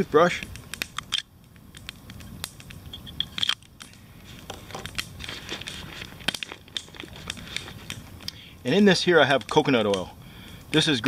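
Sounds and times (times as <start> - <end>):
sharp clicks and crackles: 0.0 - 10.9
rustling nylon bag: 4.2 - 8.2.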